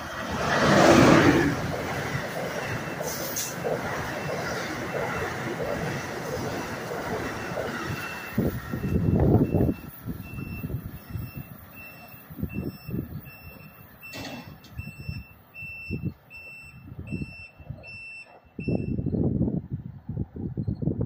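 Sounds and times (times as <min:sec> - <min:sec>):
low gusty rumbles: 0:00.0 - 0:03.0, 0:03.6 - 0:11.4, 0:18.6 - 0:21.0
reversing alarm beeping: 0:02.3 - 0:19.3.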